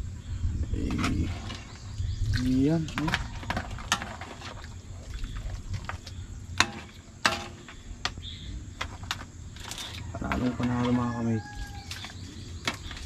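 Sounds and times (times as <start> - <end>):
steady low rumble: 0.0 - 7.2
metal ladle scraping a wok: 3.0 - 4.7.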